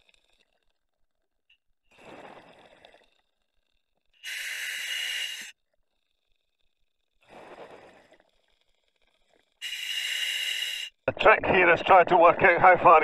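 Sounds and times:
diver breathing through regulator: 4.2 - 5.5, 7.2 - 8.3, 9.6 - 11.0.

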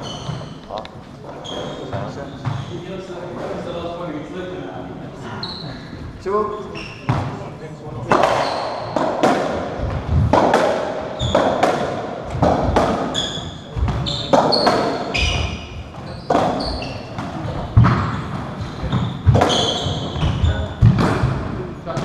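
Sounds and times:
shoes squeaking on wooden floor: 0.0 - 3.6, 5.2 - 6.0, 6.6 - 7.5, 8.3 - 9.0, 11.1 - 21.1
ball hits echoing in court: 7.0 - 7.4, 8.1 - 22.0.

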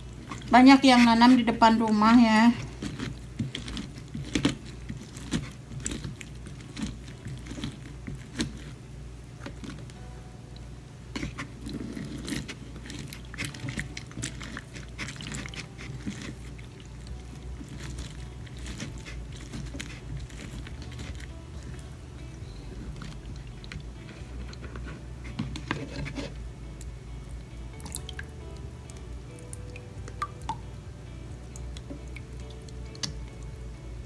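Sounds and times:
lemon squelching on citrus reamer: 0.0 - 10.0, 11.1 - 34.0
steady low hum: 0.0 - 34.0.

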